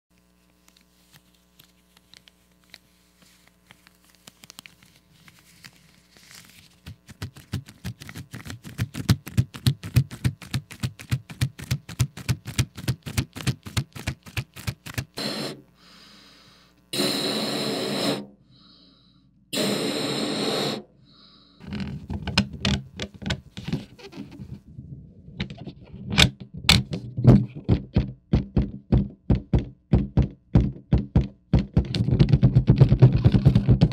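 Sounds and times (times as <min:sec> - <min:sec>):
air rushing into balloon: 0:15.2 - 0:15.6, 0:16.9 - 0:18.4, 0:19.6 - 0:20.9
rubber balloon squeaking: 0:21.6 - 0:24.7
knocks on balloon: 0:26.6 - 0:33.9.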